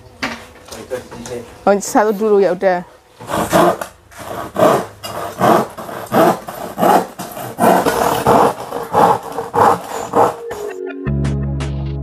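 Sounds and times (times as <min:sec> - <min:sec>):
handsaw cutting wood: 0:03.2 - 0:10.7.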